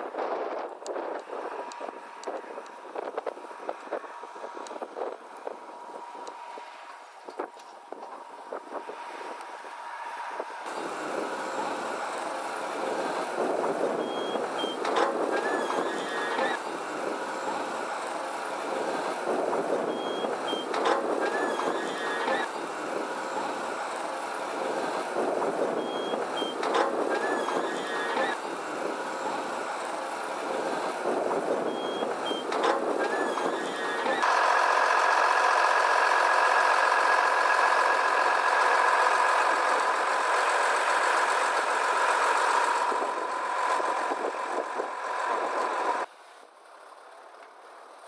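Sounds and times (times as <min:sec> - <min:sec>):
truck engine running: 0:00.0 - 0:46.1
reversing signal tones: 0:14.0 - 0:16.6, 0:31.6 - 0:34.4.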